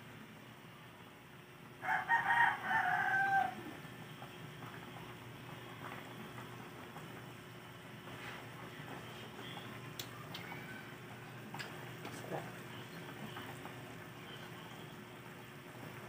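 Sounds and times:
rooster crowing: 1.8 - 3.8.

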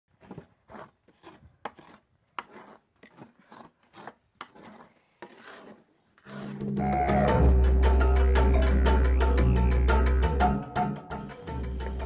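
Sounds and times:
meal scraping metal pan: 0.2 - 6.8.

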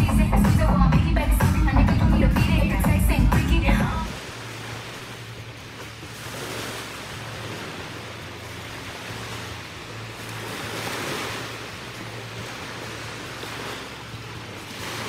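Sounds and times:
low steady hum: 0.0 - 15.0
small waves washing onto beach: 4.0 - 15.0.

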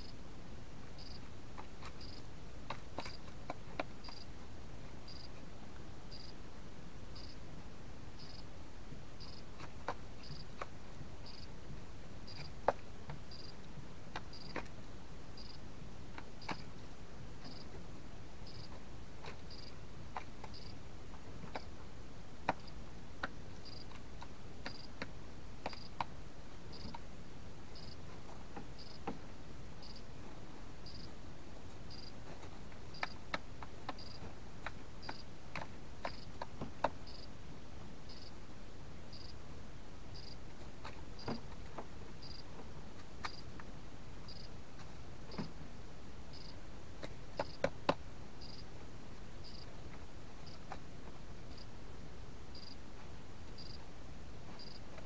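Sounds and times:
bird pecking at feed: 0.8 - 5.4, 9.2 - 37.4, 40.1 - 45.6, 46.3 - 51.8.

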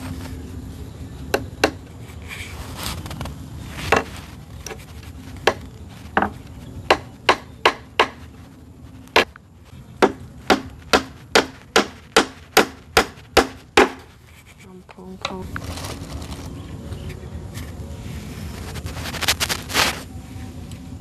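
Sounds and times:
tool striking wood: 1.3 - 1.8, 6.2 - 8.2, 10.0 - 14.1.

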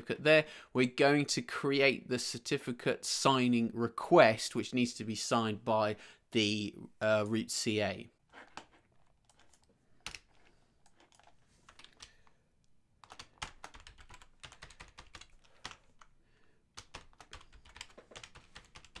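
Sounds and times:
faint keyboard typing: 8.4 - 12.4, 13.0 - 19.0.

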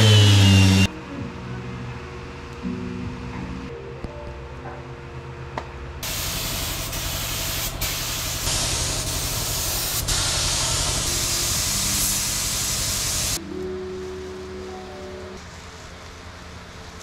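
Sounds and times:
spray gun hissing: 6.0 - 13.4.

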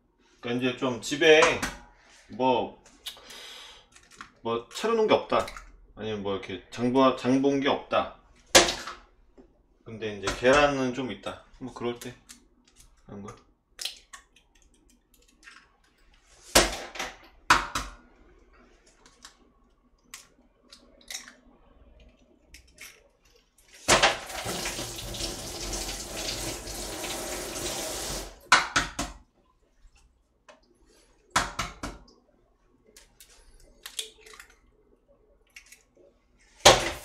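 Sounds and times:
eggs cracking on pot rim: 13.8 - 15.8, 32.9 - 34.7.

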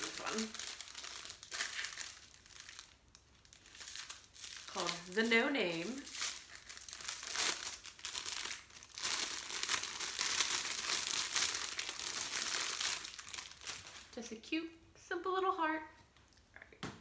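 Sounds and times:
plastic bag crinkling: 0.0 - 14.2.

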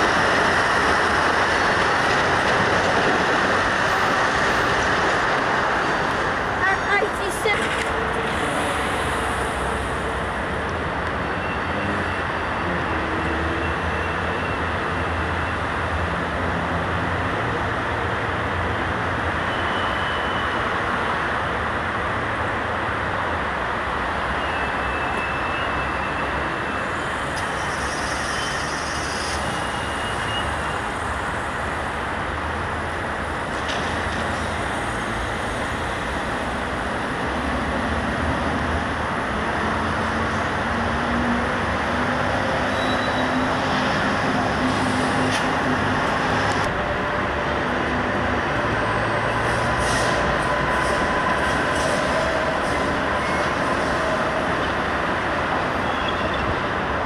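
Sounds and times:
vehicle rumble and hiss: 6.3 - 11.2, 26.8 - 42.7, 43.6 - 54.0.

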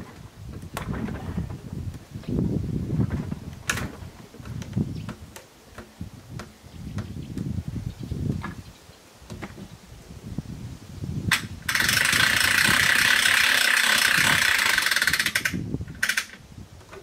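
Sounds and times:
ratchet clicking fast: 11.3 - 16.4.

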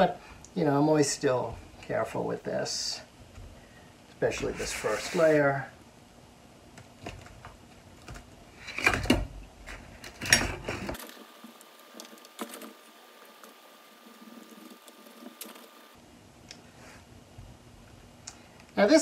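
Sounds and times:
sand scraping: 4.5 - 5.6.

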